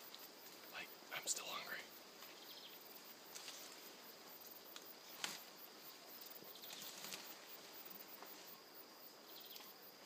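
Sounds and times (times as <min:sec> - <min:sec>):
high insect hum: 0:00.0 - 0:10.0
rustling and crackling leaves: 0:00.0 - 0:10.0
stem snapping: 0:04.7 - 0:05.4.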